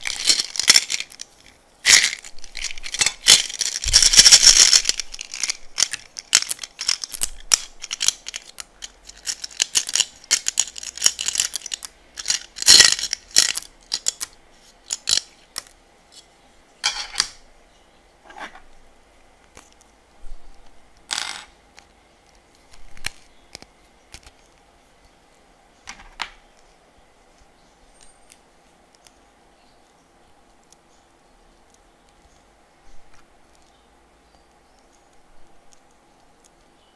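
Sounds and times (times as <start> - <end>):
plastic beads clattering on tray: 0.0 - 14.3, 21.1 - 21.5.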